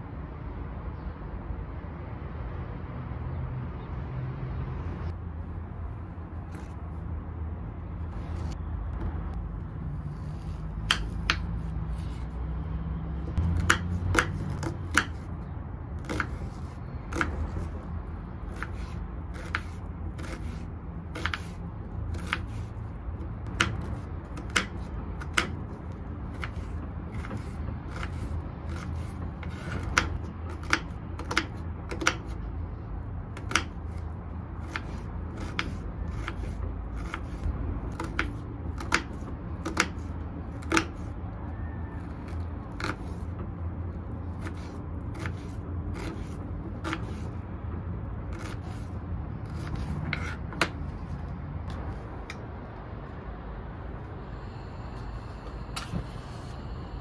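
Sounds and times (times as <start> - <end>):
steady low rumble: 4.9 - 29.5, 43.2 - 57.0.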